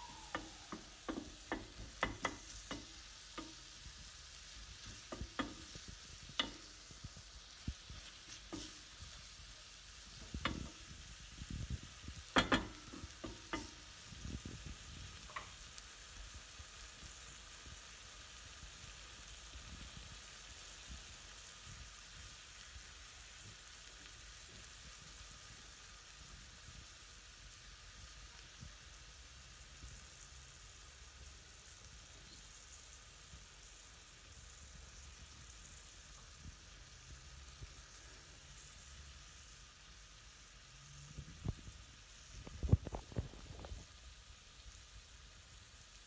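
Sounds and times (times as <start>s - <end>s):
chicken and onions sizzling in pan: 0.0s - 46.0s
wooden spoon scraping a pan: 4.8s - 9.4s.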